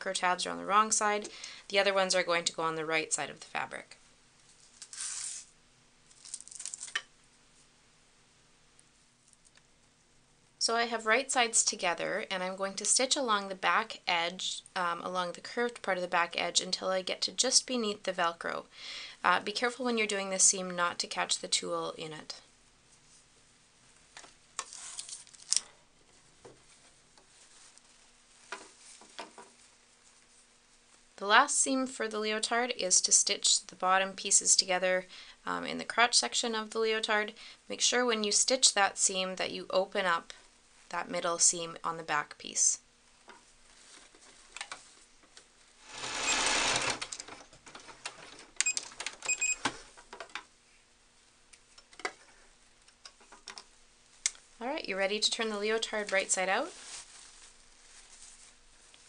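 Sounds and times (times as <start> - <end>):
fabric rustling: 22.8 - 31.2, 43.4 - 46.7, 55.7 - 59.0
sewing machine stitching: 45.8 - 47.4.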